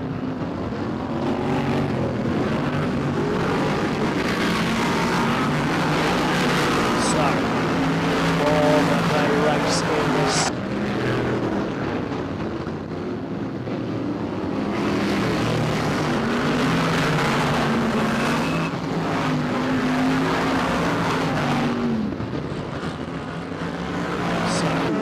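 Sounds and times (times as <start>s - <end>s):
racing car engines: 0.0s - 25.0s.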